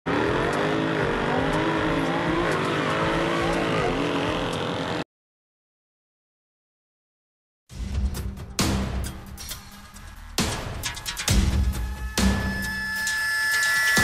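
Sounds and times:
car engine revving: 0:00.1 - 0:05.0.

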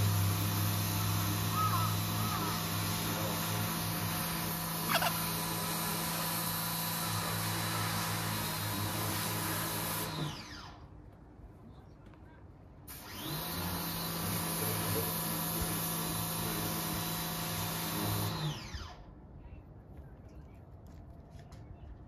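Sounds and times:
small electric motor whining: 0:00.0 - 0:10.8, 0:12.9 - 0:19.1.

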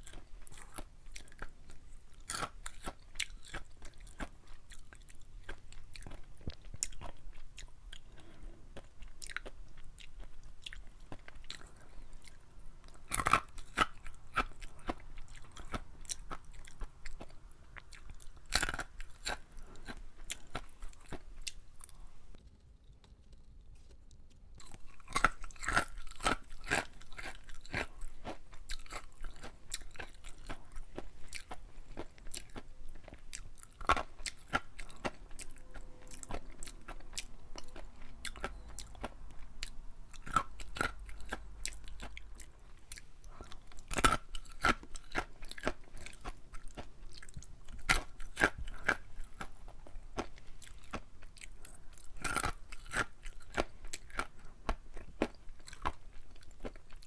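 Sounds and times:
crunchy peas being chewed: 0:00.0 - 0:57.0.

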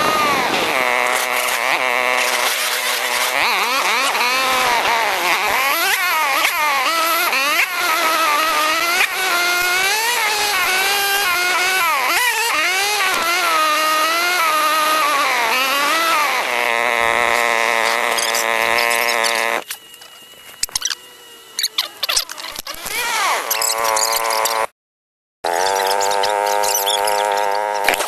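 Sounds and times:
atv engine revving: 0:00.0 - 0:19.8, 0:21.6 - 0:24.7, 0:25.4 - 0:28.0.

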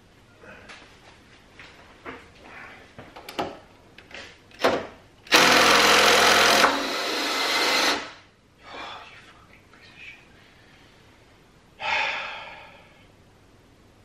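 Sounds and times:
cordless impact driver: 0:04.6 - 0:08.2.

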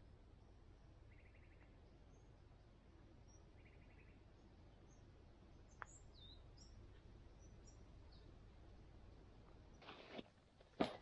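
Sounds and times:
faint bird chirps: 0:00.4 - 0:08.7
bird trill: 0:01.1 - 0:02.3, 0:03.2 - 0:04.2, 0:05.7 - 0:06.8.

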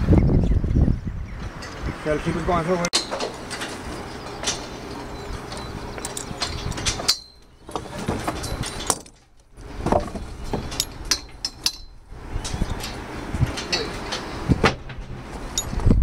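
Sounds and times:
rough rumbling background noise: 0:00.0 - 0:16.0
metallic clinks: 0:03.0 - 0:09.4, 0:10.4 - 0:12.0, 0:15.4 - 0:15.8.

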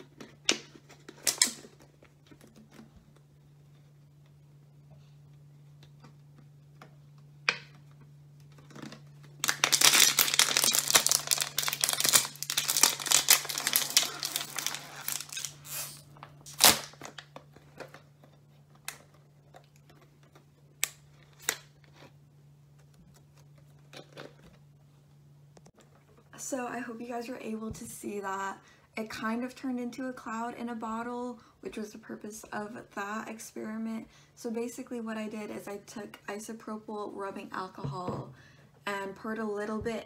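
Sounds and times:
plastic bottle crinkling: 0:08.5 - 0:18.0.

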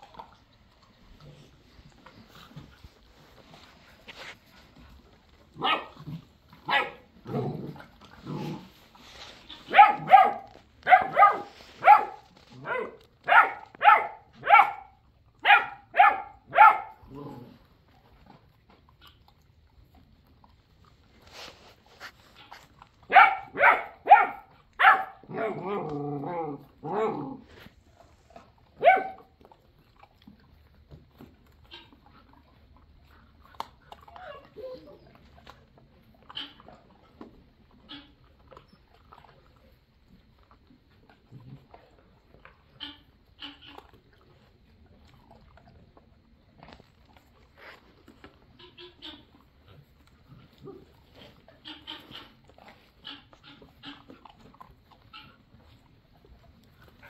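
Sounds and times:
puppy barking high-pitched: 0:05.6 - 0:06.0, 0:06.6 - 0:07.0, 0:09.7 - 0:17.0, 0:23.1 - 0:25.8, 0:28.8 - 0:29.3
rustling of straw: 0:08.4 - 0:12.7, 0:21.2 - 0:22.9.

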